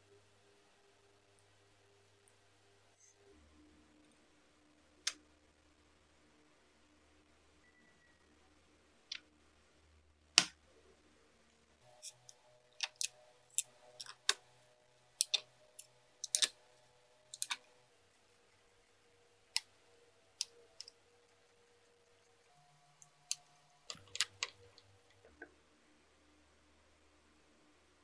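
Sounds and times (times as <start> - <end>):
plastic parts clicking and tapping: 11.9 - 14.6, 15.2 - 17.8, 23.0 - 25.5.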